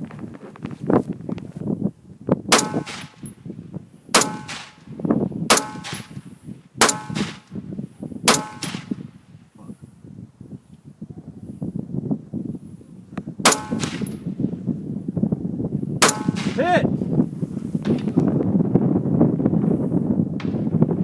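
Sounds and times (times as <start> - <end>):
gunshots with metallic ring: 2.5 - 3.3, 4.2 - 4.8, 5.5 - 6.2, 6.8 - 7.5, 8.3 - 9.0, 13.5 - 14.2, 16.0 - 16.6.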